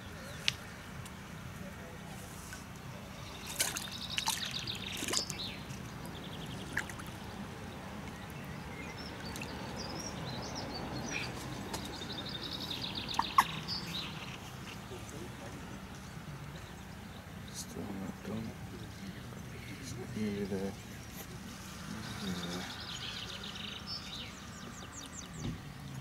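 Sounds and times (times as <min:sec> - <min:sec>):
low background hiss: 0:00.0 - 0:26.0
bird chirps: 0:03.2 - 0:07.4, 0:08.1 - 0:26.0
bird trills: 0:08.9 - 0:14.7.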